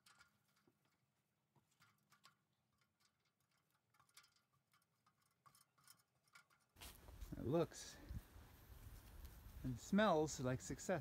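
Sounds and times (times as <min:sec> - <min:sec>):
faint ticks and clicks: 0:01.6 - 0:06.7.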